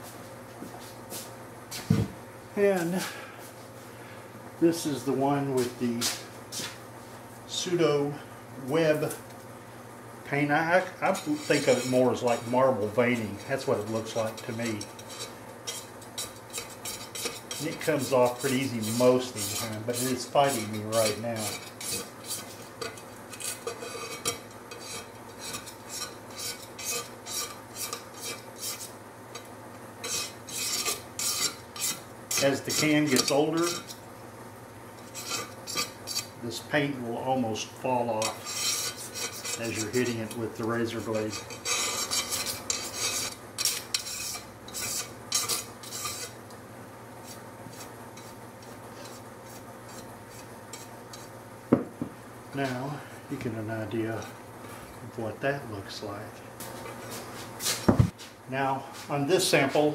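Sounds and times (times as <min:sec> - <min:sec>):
brush sweeping glass: 0:11.0 - 0:29.0, 0:30.0 - 0:34.0, 0:35.0 - 0:36.4, 0:38.1 - 0:46.4, 0:47.2 - 0:51.3
razor blade scraping glass: 0:11.0 - 0:34.0, 0:35.0 - 0:36.4, 0:38.1 - 0:46.4, 0:47.2 - 0:51.3.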